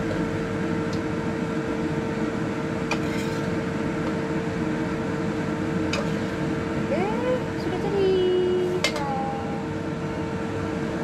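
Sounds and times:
steady mechanical hum: 0:00.0 - 0:11.0
metal spatula scraping wok: 0:03.0 - 0:03.5.

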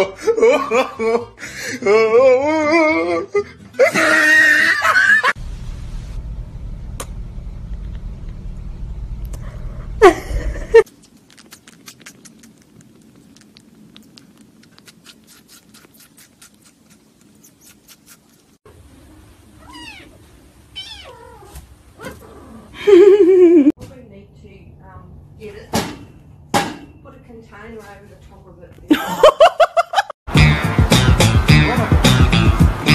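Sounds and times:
cat meow: 0:19.6 - 0:20.2, 0:20.8 - 0:22.2.

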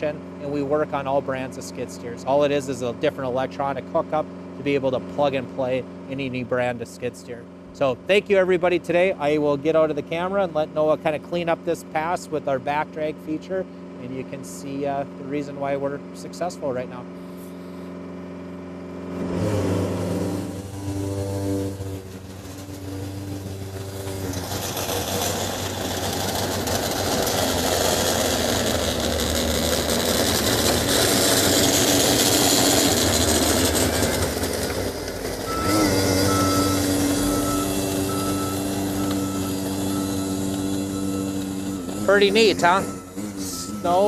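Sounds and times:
diesel engine revving: 0:00.0 - 0:44.0
rush of blowing snow: 0:19.1 - 0:44.0
high repeated beeping: 0:35.5 - 0:44.0.

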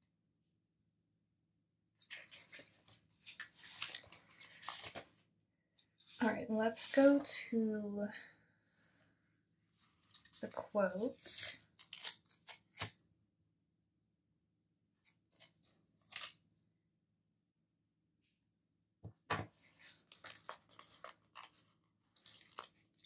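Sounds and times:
paper sticker sheets rustling: 0:02.0 - 0:05.1, 0:19.7 - 0:23.0.

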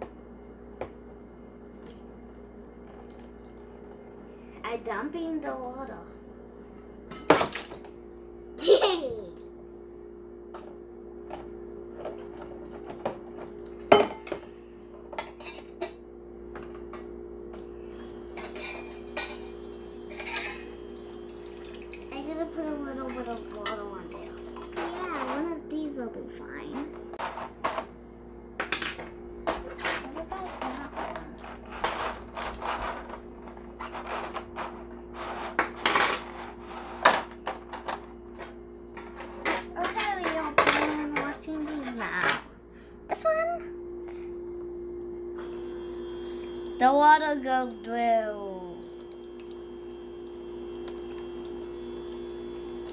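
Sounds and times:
steady hum: 0:00.0 - 0:52.9.

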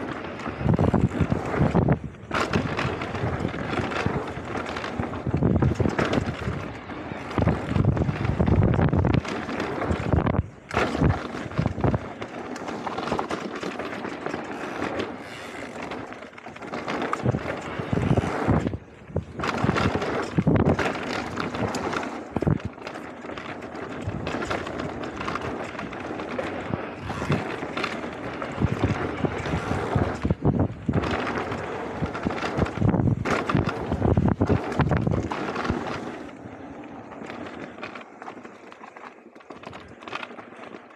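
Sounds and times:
bike frame clattering: 0:00.0 - 0:36.4
wind buffeting microphone: 0:00.0 - 0:38.4
mountain bike rattling on dirt trail: 0:00.0 - 0:40.9.

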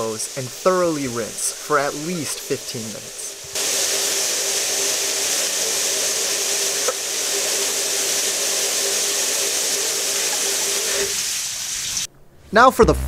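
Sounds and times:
safety shower pouring water: 0:00.0 - 0:12.1.

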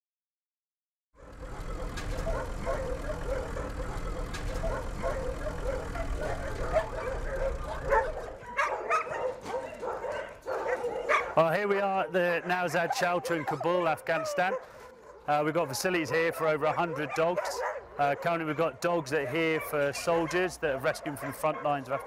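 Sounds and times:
vehicle rumble: 0:01.2 - 0:10.4
dogs barking: 0:01.2 - 0:22.0.

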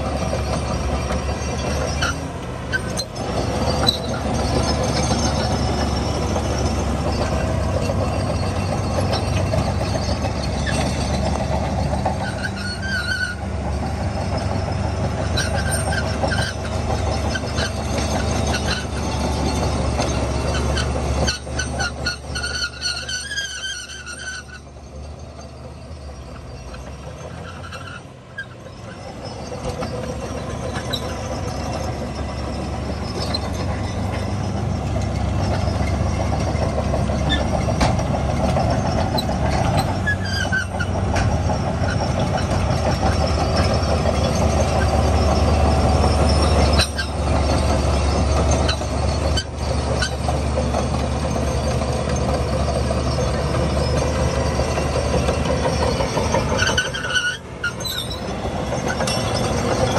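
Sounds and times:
bulldozer diesel engine: 0:00.0 - 0:59.9
steel tracks rattling: 0:00.0 - 0:59.9
brief squeaks: 0:01.2 - 0:11.4, 0:12.1 - 0:13.5, 0:15.3 - 0:19.2, 0:20.0 - 0:50.8, 0:51.4 - 0:59.9.

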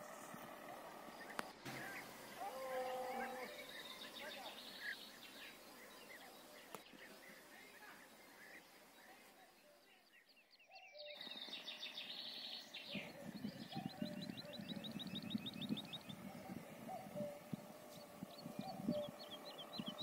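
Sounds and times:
small birds chirping: 0:00.0 - 0:20.0
cows chewing grass: 0:16.1 - 0:20.0.

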